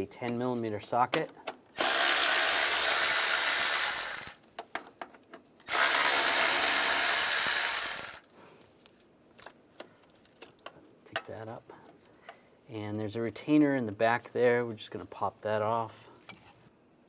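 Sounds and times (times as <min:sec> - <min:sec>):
power tool spinning socket: 0:01.7 - 0:04.4, 0:05.6 - 0:08.3.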